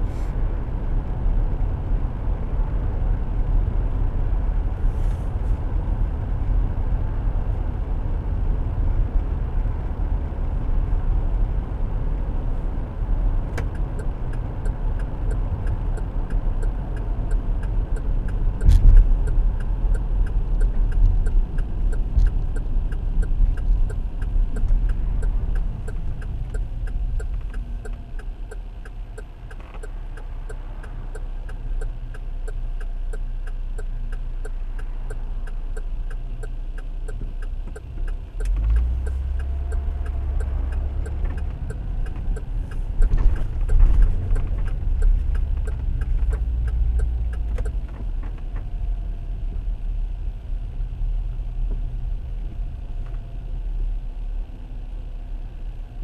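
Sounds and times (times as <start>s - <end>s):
engine and tyre rumble: 0.0s - 56.0s
faint regular ticking: 13.6s - 48.9s.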